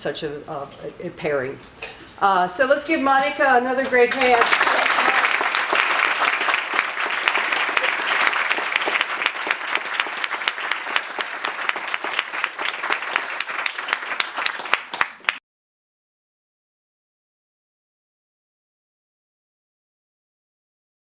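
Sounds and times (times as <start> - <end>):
audience applauding: 4.0 - 15.4.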